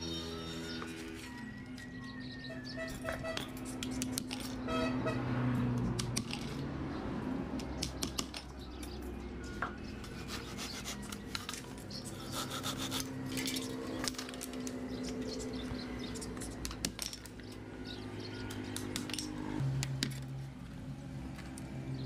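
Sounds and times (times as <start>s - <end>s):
handsaw rasping through wood: 10.0s - 11.4s, 12.1s - 13.2s.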